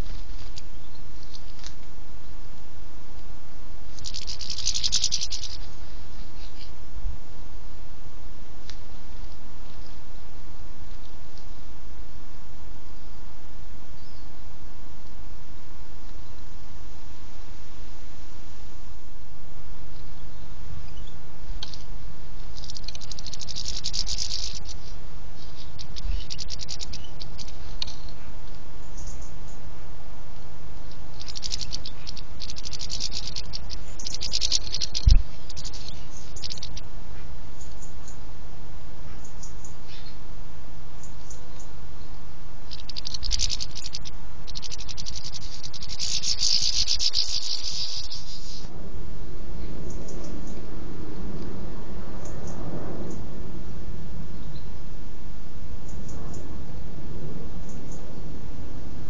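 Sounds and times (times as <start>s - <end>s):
birds fluttering wings: 0.0s - 6.9s, 21.5s - 28.8s, 30.8s - 38.1s, 42.6s - 48.7s
songbirds chattering: 0.0s - 15.2s, 19.7s - 53.4s, 54.2s - 54.9s, 55.8s - 58.5s
steady low hum: 0.0s - 59.0s
low rumble: 47.5s - 59.0s.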